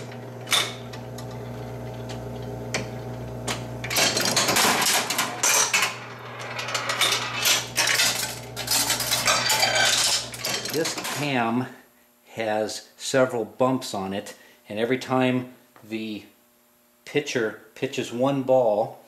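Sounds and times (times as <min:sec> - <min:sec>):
motor hum: 0:00.0 - 0:10.8
steel balls clattering through metal: 0:03.9 - 0:11.3.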